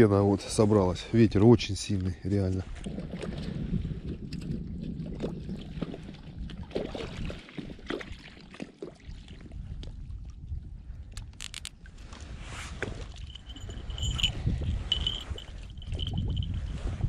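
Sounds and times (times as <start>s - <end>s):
wind buffeting microphone: 2.6s - 8.2s, 9.1s - 17.0s
small waves lapping at shore: 5.3s - 9.8s.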